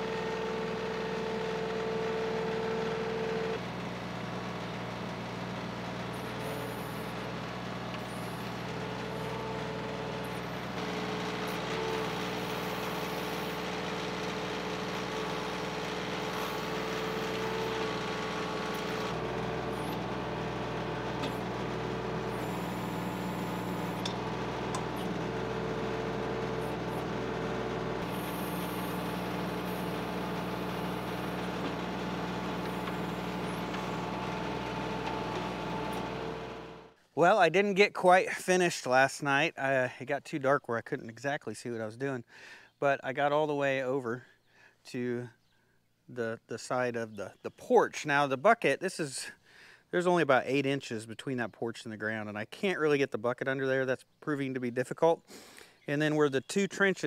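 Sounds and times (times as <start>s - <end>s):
hydraulics whine: 0.0s - 37.0s
tractor diesel engine running: 0.0s - 37.0s.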